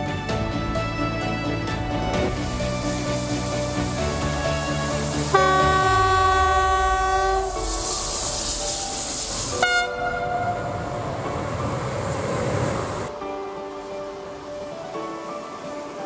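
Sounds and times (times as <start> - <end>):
train wheels rolling past: 0.0 - 16.0
locomotive horn blast: 5.3 - 7.7, 9.5 - 11.0.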